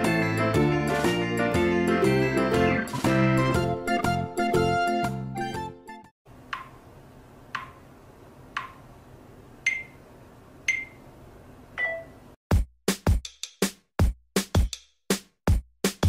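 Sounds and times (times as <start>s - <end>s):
music: 0.0s - 6.2s, 12.5s - 16.0s.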